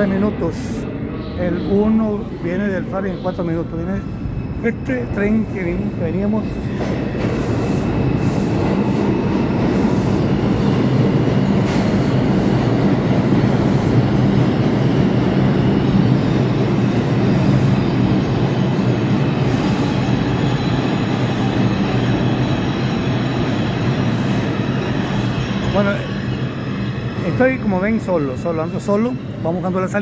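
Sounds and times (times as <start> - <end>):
faint high squeal: 0.0 - 7.1
subway train wheels rumbling: 0.0 - 30.0.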